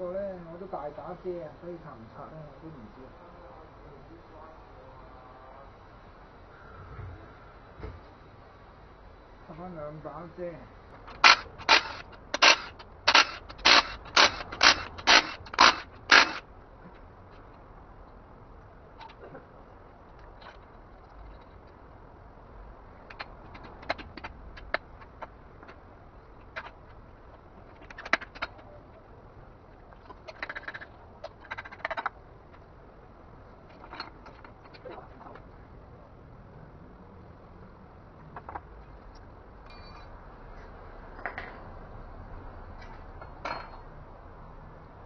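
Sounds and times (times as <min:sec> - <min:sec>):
metal engine parts clinking: 0:39.6 - 0:40.2.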